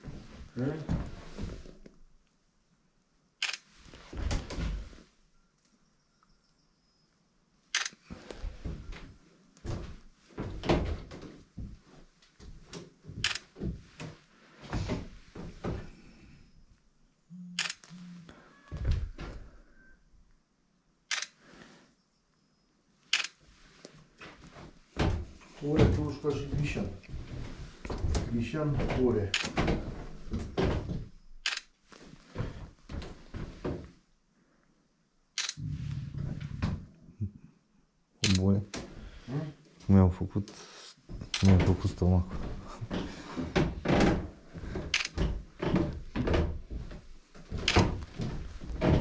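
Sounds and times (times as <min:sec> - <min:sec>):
footsteps on wooden floorboards: 0:00.0 - 0:01.9, 0:08.1 - 0:16.0, 0:24.2 - 0:31.2, 0:32.0 - 0:34.0, 0:41.0 - 0:49.0.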